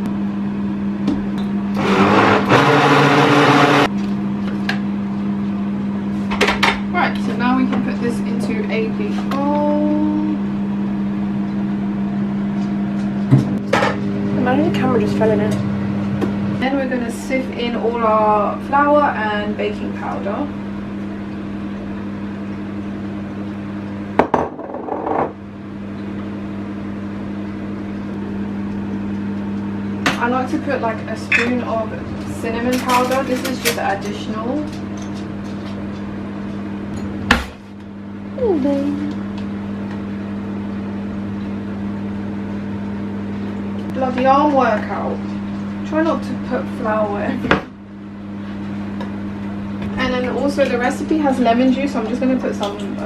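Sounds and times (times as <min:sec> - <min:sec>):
steady low hum: 0:00.0 - 0:24.6, 0:25.2 - 0:53.0
blender motor running: 0:01.6 - 0:03.9.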